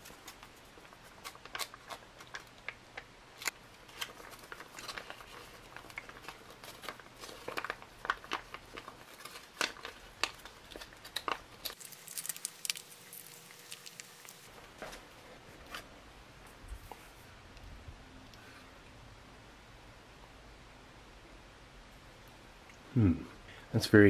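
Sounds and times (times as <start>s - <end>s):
foil pouch crinkling: 3.4s - 14.5s.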